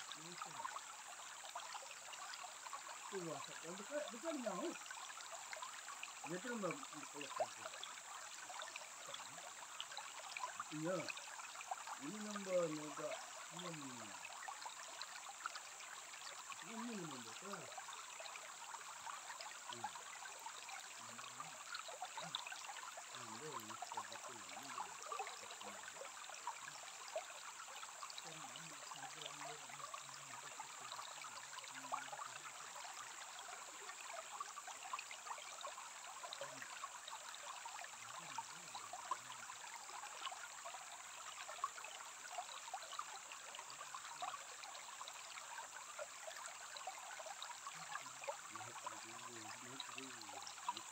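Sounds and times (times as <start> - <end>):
stream trickling over pebbles: 0.0 - 50.9.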